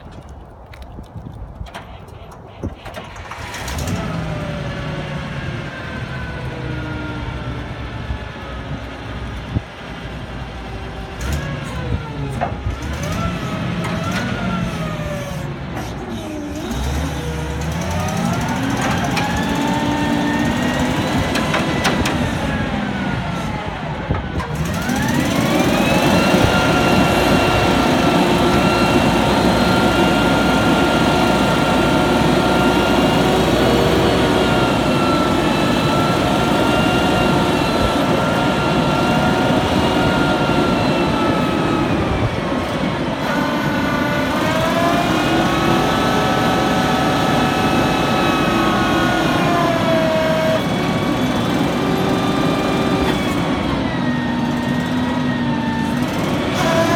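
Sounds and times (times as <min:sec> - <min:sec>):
forklift engine running: 0:01.6 - 0:56.9.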